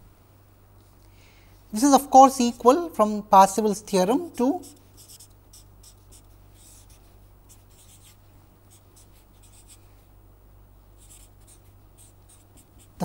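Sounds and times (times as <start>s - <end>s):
steady low hum: 0.0s - 13.0s
marker pen scratching on paper: 4.6s - 9.9s, 11.0s - 13.0s.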